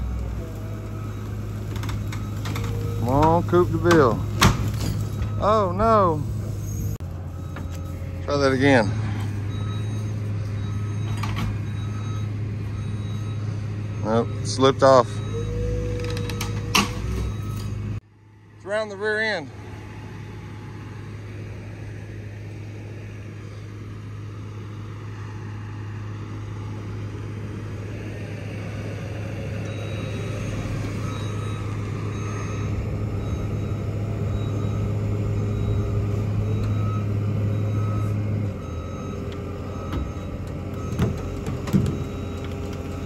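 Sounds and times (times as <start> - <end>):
heavy diesel engine working: 0.0 - 43.0
backup alarm beeping: 5.1 - 6.3, 7.3 - 18.0, 29.6 - 43.0.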